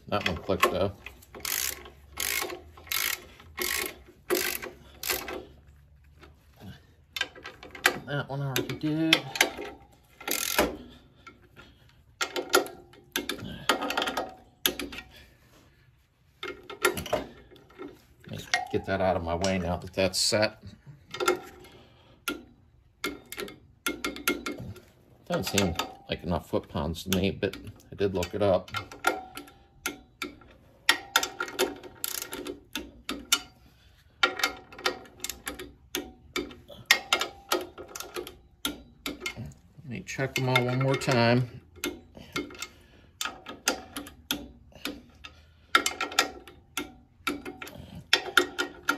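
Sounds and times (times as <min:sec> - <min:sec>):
torque wrench clicking: 0:00.2 - 0:05.5, 0:09.2 - 0:10.9, 0:28.8 - 0:33.5.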